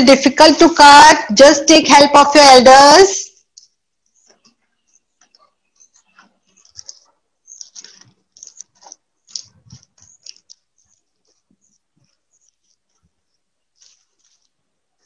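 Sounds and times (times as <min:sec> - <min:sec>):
plastic sheet crinkling: 0:04.2 - 0:15.0.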